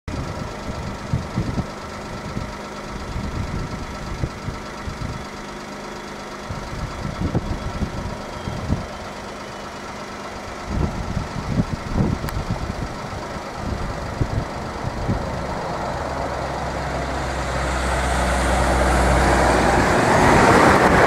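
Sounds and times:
wind buffeting microphone: 0:00.1 - 0:05.3, 0:06.5 - 0:09.0, 0:10.5 - 0:21.0
jet engines whining: 0:13.2 - 0:21.0.

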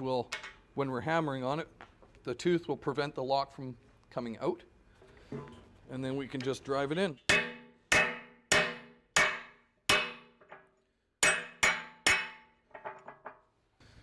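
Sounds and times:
hammer striking steel punch: 0:07.3 - 0:10.4, 0:11.2 - 0:12.6.

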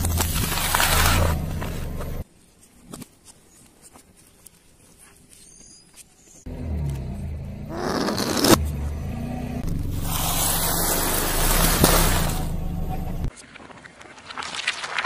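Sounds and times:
car engine running: 0:06.5 - 0:13.3
faint crackles: 0:13.3 - 0:15.0.

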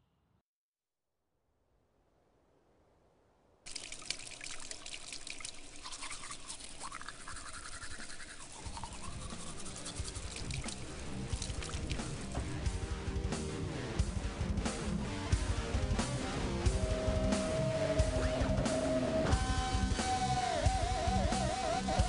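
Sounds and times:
toothbrush scrubbing teeth: 0:03.7 - 0:12.4
music: 0:08.9 - 0:22.0.

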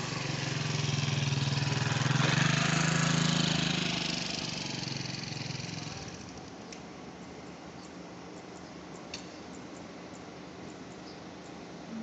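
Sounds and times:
small petrol engine running: 0:00.0 - 0:06.5.

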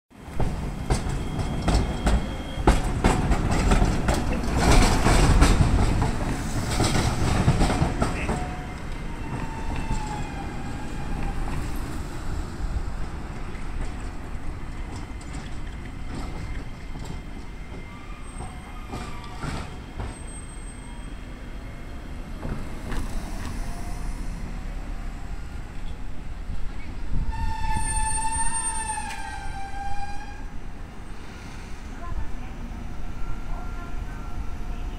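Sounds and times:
streetcar wheels clattering: 0:00.2 - 0:32.1
high wheel squeals: 0:01.0 - 0:03.2, 0:16.0 - 0:21.9, 0:27.3 - 0:30.5.

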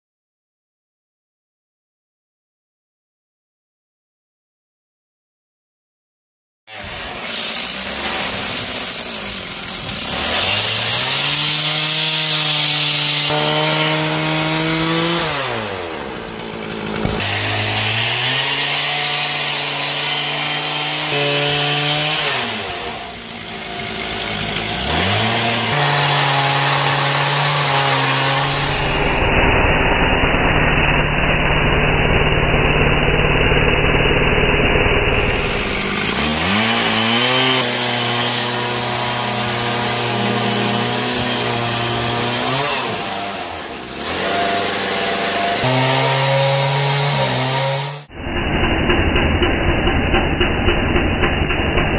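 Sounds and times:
chainsaw engine revving: 0:06.7 - 0:48.1.

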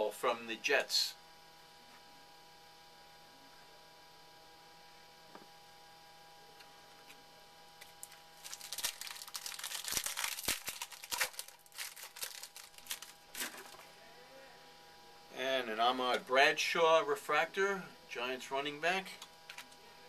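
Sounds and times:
wrapper tearing and crinkling: 0:07.9 - 0:13.8.

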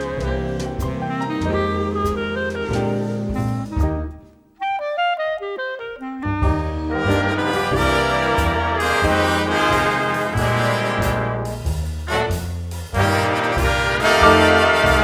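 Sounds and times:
jazz music with brass horns: 0:00.0 - 0:15.0.

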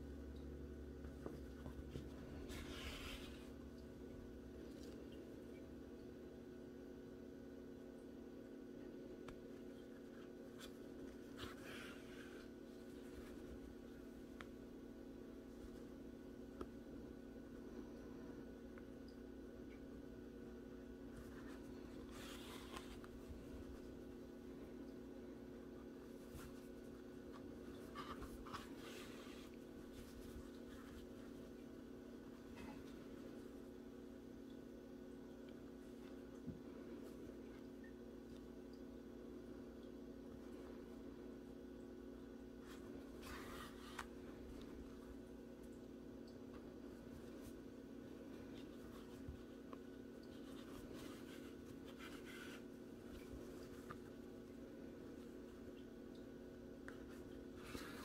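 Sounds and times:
steady low hum: 0:00.0 - 0:58.0
yarn rustling through stitches: 0:21.0 - 0:24.3, 0:25.8 - 0:33.6, 0:46.5 - 0:55.8.

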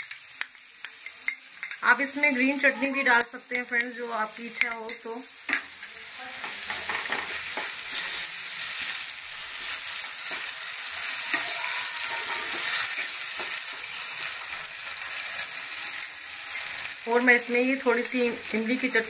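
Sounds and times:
vegetables sizzling in a pan: 0:00.0 - 0:19.0
wooden spatula scraping: 0:09.5 - 0:15.5.

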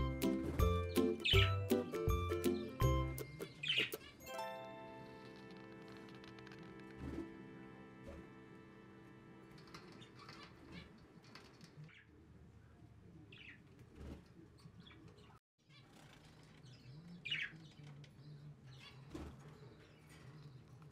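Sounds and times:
budgerigars chirping: 0:00.7 - 0:01.8, 0:03.4 - 0:04.2.

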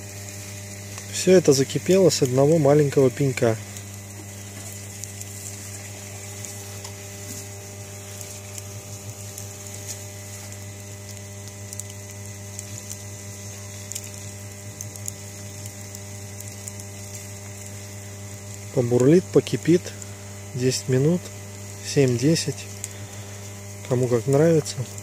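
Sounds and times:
steady low hum: 0:00.0 - 0:25.0
water boiling in a tin: 0:00.0 - 0:25.0
wood fire crackling and popping: 0:00.0 - 0:25.0.

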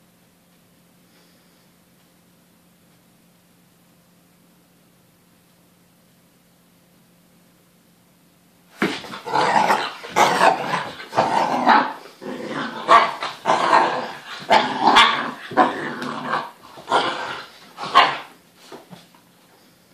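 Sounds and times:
dogs growling and barking: 0:08.9 - 0:18.4.

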